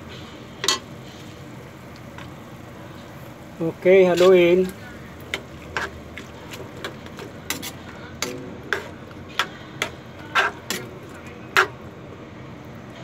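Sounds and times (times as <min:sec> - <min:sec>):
metal ladle scraping a wok: 0:04.1 - 0:11.8.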